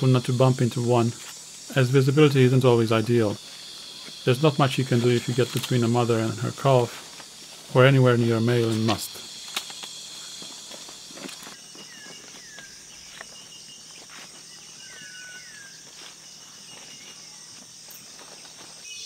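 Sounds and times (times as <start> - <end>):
insects chorus: 0.0 - 19.0
footsteps on leaf litter: 9.8 - 19.0.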